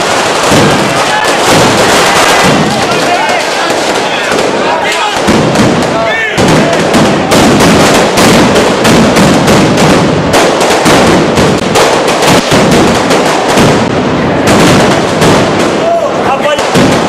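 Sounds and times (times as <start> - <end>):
firecrackers banging rapidly: 0.0 - 17.0.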